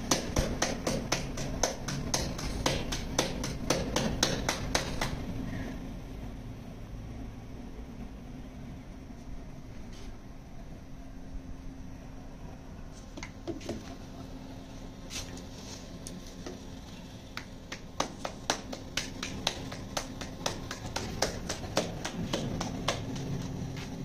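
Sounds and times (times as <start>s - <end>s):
hands slapping dough: 0.0s - 5.2s, 17.3s - 24.0s.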